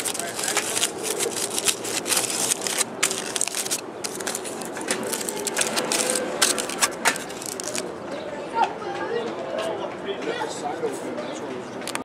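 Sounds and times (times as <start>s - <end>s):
aluminium foil crinkling: 0.0s - 7.9s.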